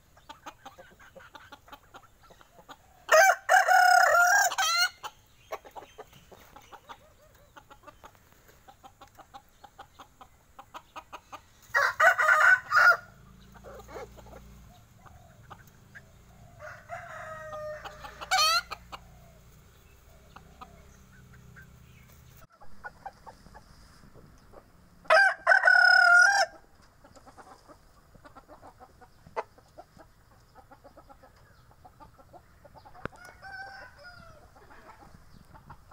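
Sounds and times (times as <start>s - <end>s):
soft clucking: 0.0s - 3.0s, 5.0s - 11.6s, 17.7s - 24.7s, 26.9s - 33.5s
rooster crowing: 3.1s - 5.0s, 11.7s - 13.2s, 16.5s - 18.8s, 25.1s - 26.6s, 33.1s - 34.5s.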